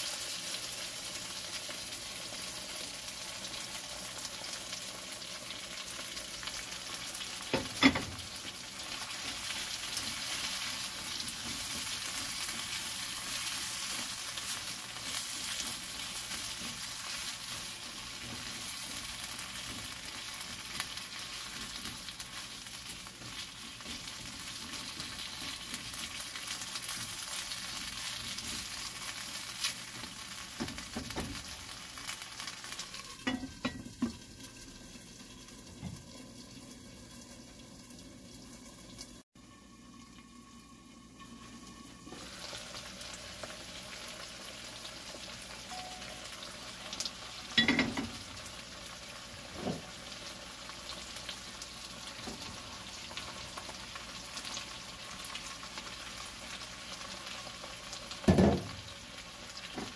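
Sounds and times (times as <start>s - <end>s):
vegetables sizzling in oil: 0.0s - 59.9s
wooden spatula scraping a pan: 9.0s - 30.1s.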